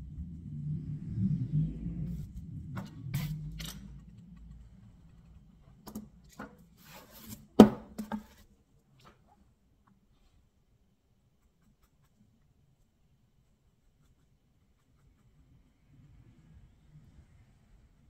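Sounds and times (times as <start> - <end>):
low rumble: 0.0 - 6.2.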